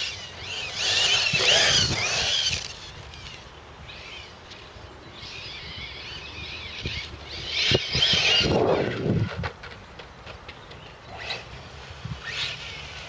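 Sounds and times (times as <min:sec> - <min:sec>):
electric motor whining: 0:00.0 - 0:09.4.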